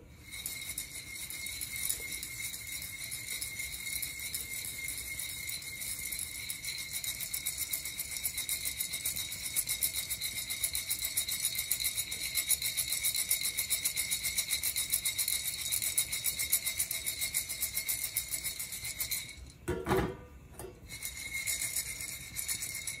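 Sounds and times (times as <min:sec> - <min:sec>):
coffee beans rattling in roaster: 0:00.0 - 0:19.7, 0:20.7 - 0:23.0.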